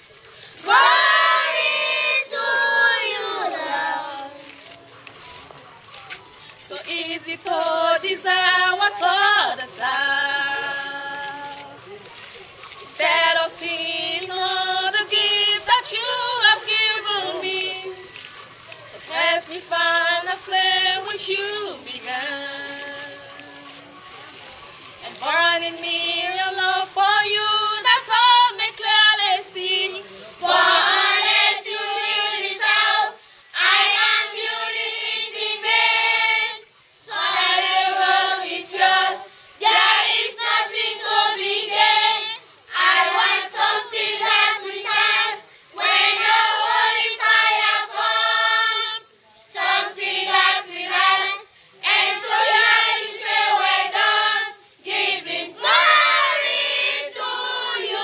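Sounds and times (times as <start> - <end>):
children and women singing unaccompanied: 0.3 - 5.2, 6.4 - 58.0.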